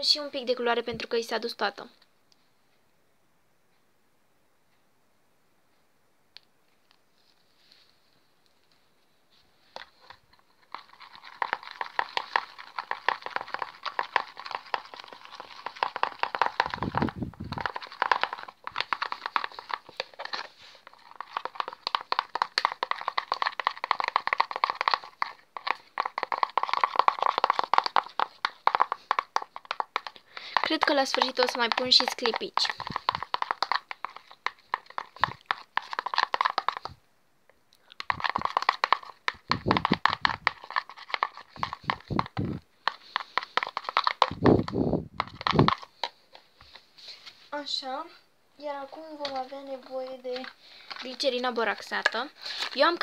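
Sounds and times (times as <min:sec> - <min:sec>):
slime stirred in plastic bowl: 0:09.6 - 0:37.0, 0:37.8 - 0:47.7, 0:48.6 - 0:53.0.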